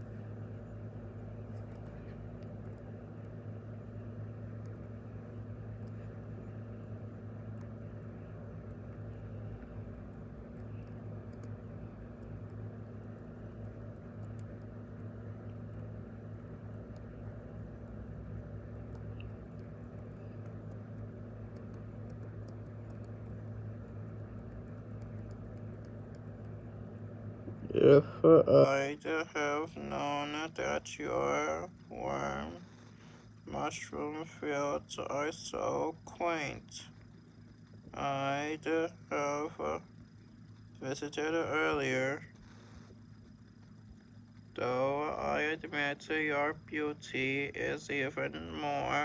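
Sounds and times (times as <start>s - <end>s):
low machine hum: 0.0s - 49.0s
faint light ticks: 1.5s - 3.4s, 4.5s - 6.6s, 7.4s - 27.1s.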